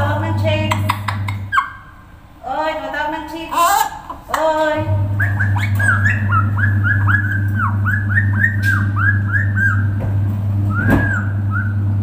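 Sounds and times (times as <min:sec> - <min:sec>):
steady low hum: 0:00.0 - 0:12.0
parrot whistling: 0:01.3 - 0:02.0, 0:05.1 - 0:10.0, 0:10.7 - 0:11.9.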